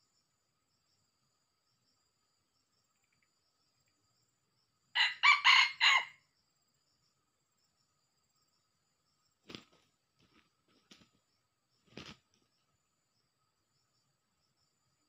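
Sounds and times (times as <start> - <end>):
rooster crowing: 5.0 - 6.2.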